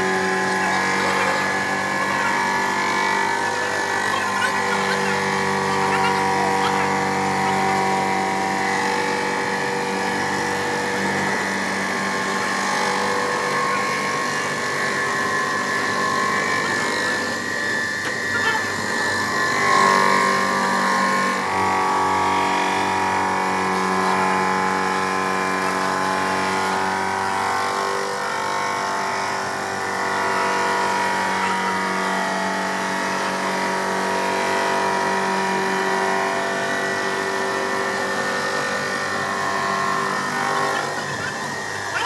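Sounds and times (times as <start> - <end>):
machine motor humming: 0.0 - 27.5, 36.4 - 42.0.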